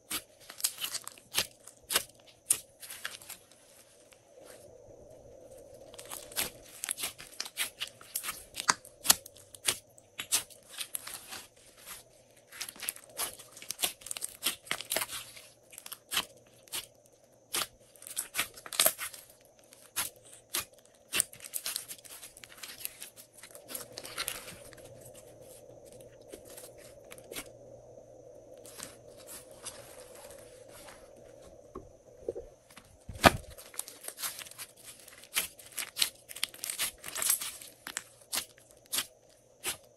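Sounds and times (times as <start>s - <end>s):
slime crackling and popping: 6.0s - 11.4s, 19.8s - 23.1s, 33.2s - 39.8s
slime thump: 33.1s - 33.6s.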